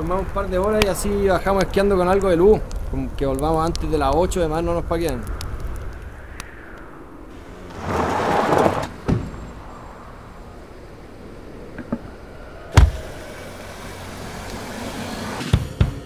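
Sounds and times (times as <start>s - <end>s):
rushing noise: 0.0s - 15.6s
heavy thump: 7.8s - 9.6s.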